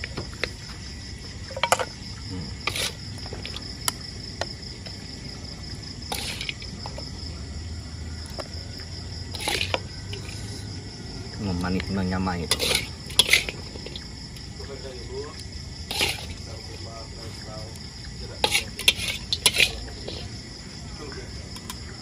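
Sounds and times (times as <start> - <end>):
crickets chirping: 0.0 - 22.0
metal spatula scraping a wok: 2.6 - 3.0, 6.1 - 6.6, 9.3 - 10.7, 12.4 - 14.0, 15.9 - 16.4, 18.4 - 20.4.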